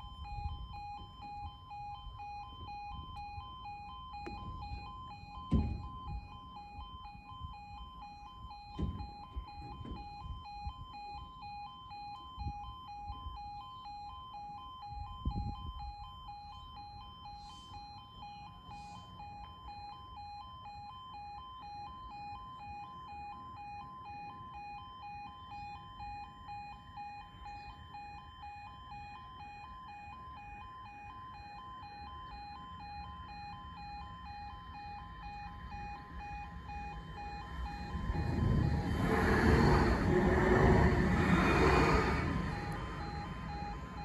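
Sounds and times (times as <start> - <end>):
two-tone crossing alarm: 0.0 - 44.0
tram running noise: 36.4 - 44.0.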